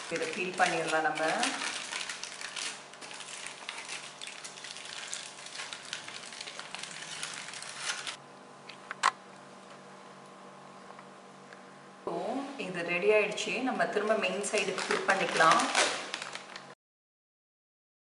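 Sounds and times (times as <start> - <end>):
foil crinkling: 0.0 - 8.2, 14.4 - 16.8.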